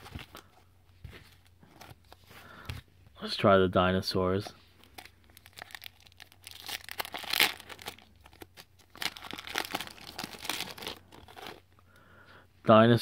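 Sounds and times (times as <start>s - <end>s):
foil wrapper crinkling and tearing: 4.8s - 11.6s.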